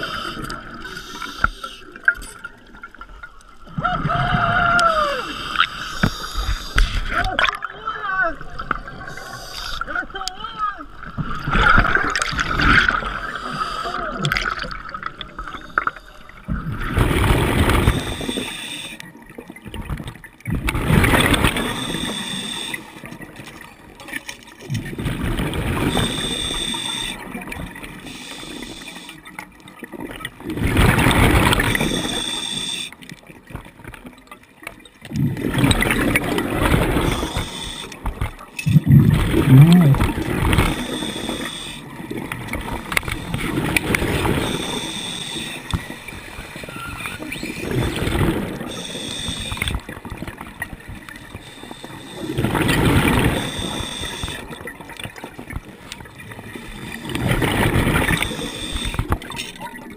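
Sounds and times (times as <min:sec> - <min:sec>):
diver breathing through regulator: 0:00.0 - 0:02.0, 0:05.2 - 0:07.1, 0:09.1 - 0:09.9, 0:12.8 - 0:14.4, 0:17.6 - 0:19.0, 0:21.1 - 0:23.0, 0:25.6 - 0:27.2, 0:28.0 - 0:29.2, 0:31.3 - 0:33.0, 0:36.2 - 0:38.1, 0:38.7 - 0:42.0, 0:42.8 - 0:49.9, 0:51.3 - 0:54.6, 0:56.6 - 0:59.2
gurgling exhaust bubbles: 0:38.6 - 0:41.1.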